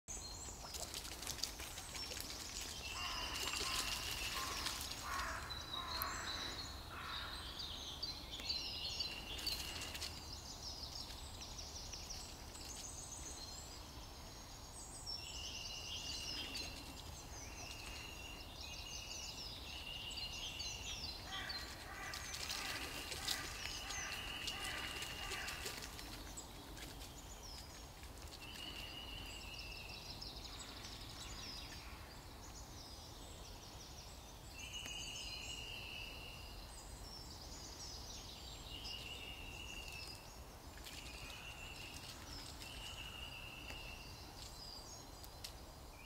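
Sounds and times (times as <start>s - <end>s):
songbirds singing and calling: 0.1s - 46.0s.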